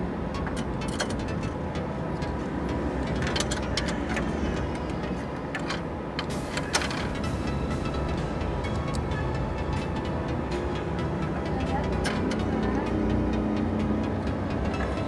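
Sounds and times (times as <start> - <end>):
plastic parts clicking and knocking: 0.4 - 1.5, 3.0 - 7.2.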